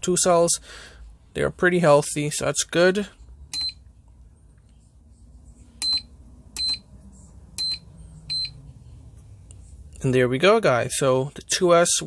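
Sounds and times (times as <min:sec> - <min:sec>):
short high-pitched key beeps: 0:05.8 - 0:06.9, 0:07.6 - 0:08.6.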